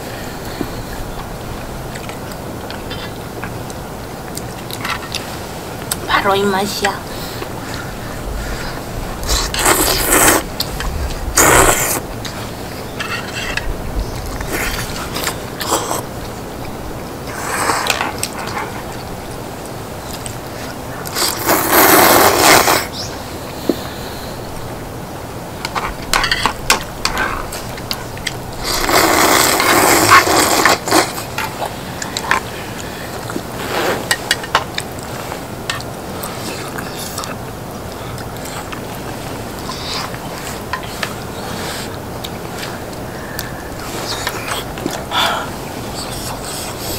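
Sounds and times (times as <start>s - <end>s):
loud slurp: 9.2s - 10.7s, 11.4s - 12.4s, 21.0s - 22.9s, 28.6s - 31.3s
chewing: 34.1s - 46.9s.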